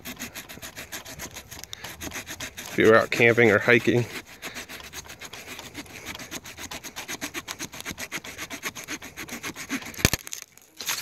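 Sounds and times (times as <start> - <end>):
saw cutting branch: 0.0 - 11.0
branch cracking: 10.0 - 11.0.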